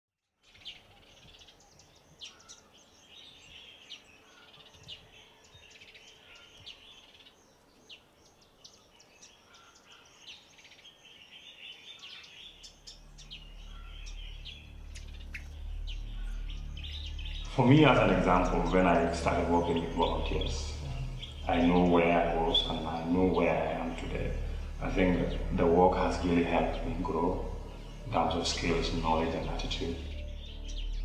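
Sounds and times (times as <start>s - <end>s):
birds chirping: 0.4s - 31.0s
low steady hum: 12.9s - 31.0s.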